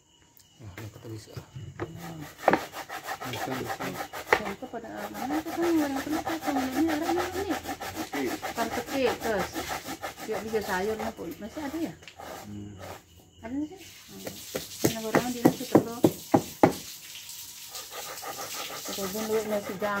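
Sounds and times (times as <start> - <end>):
coconut grater rasping: 1.8 - 13.0, 17.9 - 20.0.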